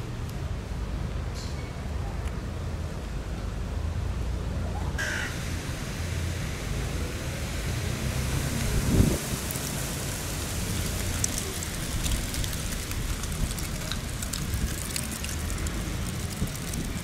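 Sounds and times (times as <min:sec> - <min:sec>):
passing traffic: 0:00.0 - 0:17.0
wind on microphone: 0:08.2 - 0:09.7
faint crackles: 0:08.5 - 0:17.0.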